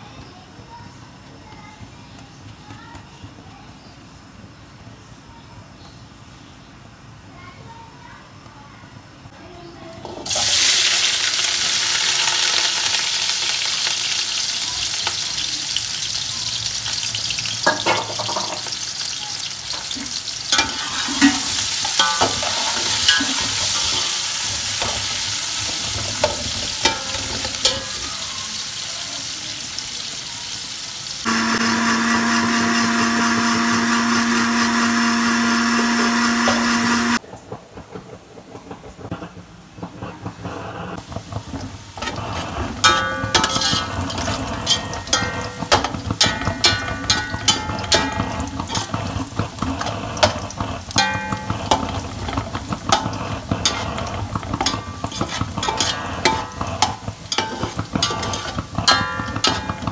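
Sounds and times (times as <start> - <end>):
onions sizzling in hot oil: 10.2 - 37.2, 39.8 - 59.9
blender motor running: 31.3 - 37.2
spoon scraping a pot: 42.0 - 59.9.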